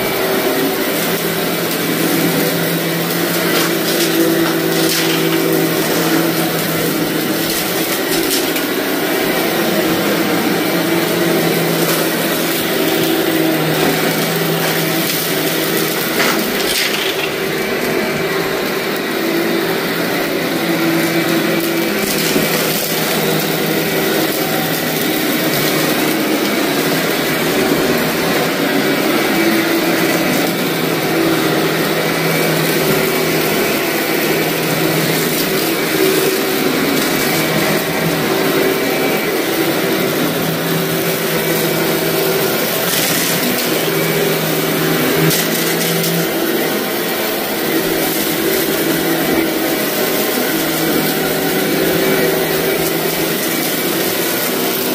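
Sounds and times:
vacuum cleaner running: 0:00.0 - 0:54.9
crunching crackles of debris: 0:03.5 - 0:08.7, 0:13.8 - 0:17.4.

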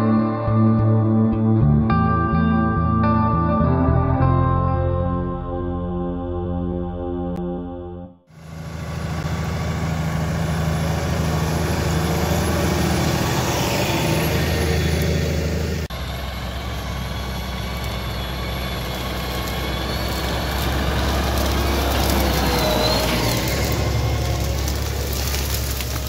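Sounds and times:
tractor diesel engine under load: 0:08.3 - 0:26.0.

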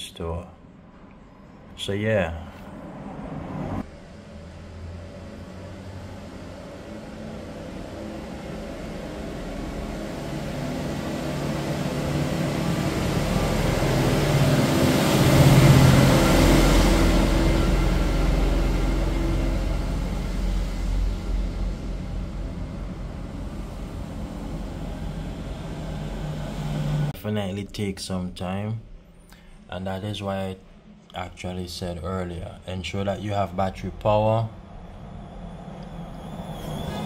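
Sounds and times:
passing vehicle engine: 0:02.4 - 0:27.2, 0:33.2 - 0:37.0.

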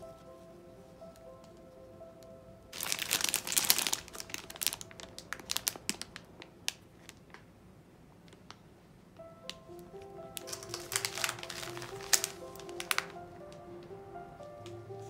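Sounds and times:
soft background music: 0:00.0 - 0:06.4, 0:09.1 - 0:15.0
plastic bag crinkling: 0:02.7 - 0:07.4, 0:10.3 - 0:13.3.

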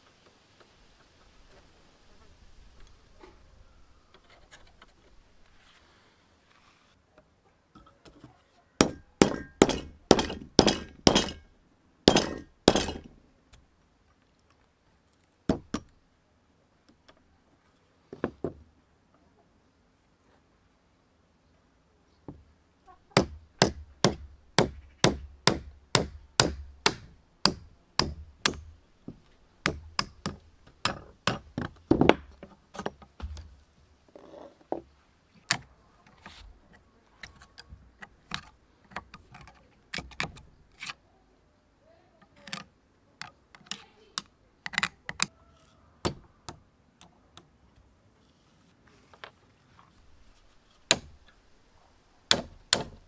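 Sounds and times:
hammer tapping steel punch: 0:08.8 - 0:11.4, 0:12.1 - 0:13.1.

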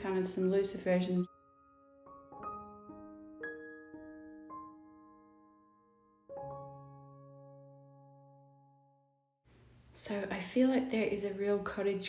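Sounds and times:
piano chord ringing: 0:01.2 - 0:09.3.

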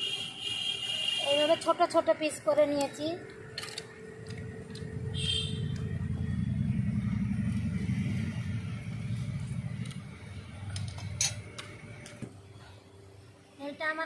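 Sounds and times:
low rumble: 0:04.5 - 0:12.0.

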